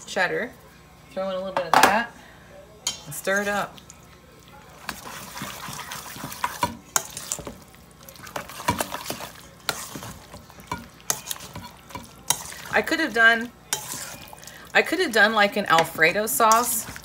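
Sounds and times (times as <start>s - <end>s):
metal utensil stirring in metal bowl: 2.8s - 3.9s, 4.6s - 17.0s.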